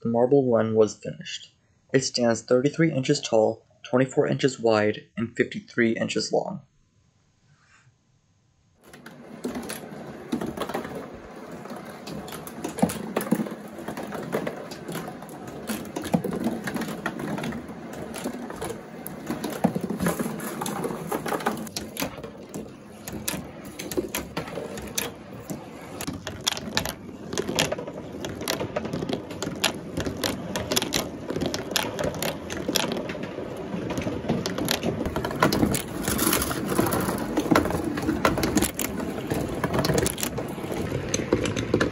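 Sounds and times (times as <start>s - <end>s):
marbles clicking against walls: 8.8s - 41.9s
marbles rolling on cardboard: 8.8s - 41.9s.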